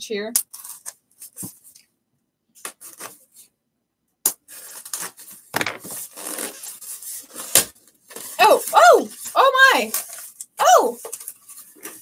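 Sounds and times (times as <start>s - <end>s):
cardboard and styrofoam rubbing: 4.5s - 10.3s.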